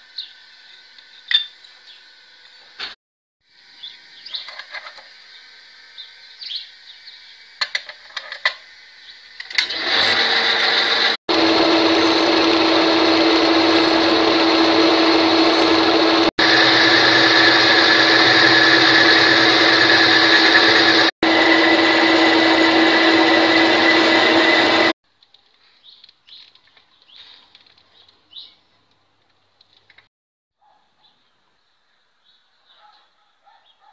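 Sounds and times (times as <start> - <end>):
metal lathe running: 9.5 - 25.0.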